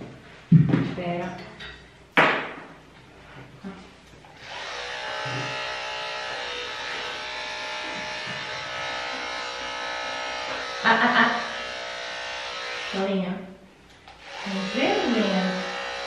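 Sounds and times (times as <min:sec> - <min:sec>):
electric clippers humming: 0:04.2 - 0:13.2, 0:13.9 - 0:16.0.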